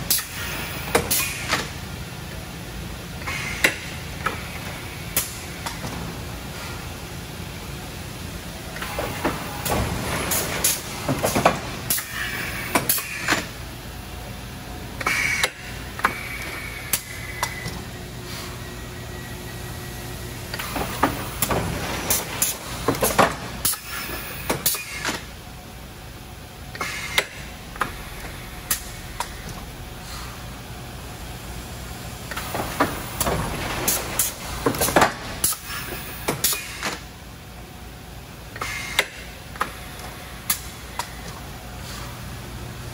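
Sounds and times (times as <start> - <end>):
machine low hum: 1.6 - 24.5, 25.2 - 36.4
machine clanks and knocks: 8.8 - 13.5, 20.5 - 23.8, 32.3 - 35.6.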